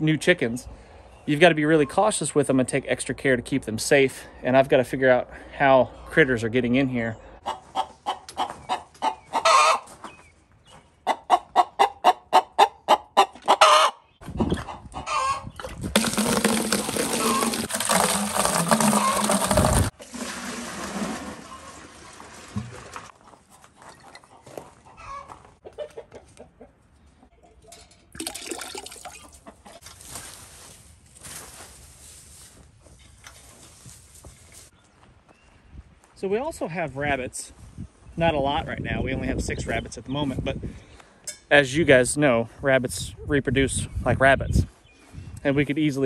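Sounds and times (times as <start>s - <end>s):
chicken clucking: 7.4s - 9.9s, 11.0s - 15.5s, 23.9s - 26.8s
water pouring from plastic bucket: 15.6s - 23.1s, 28.1s - 29.3s
boots scuffing through wood shavings: 29.8s - 34.8s.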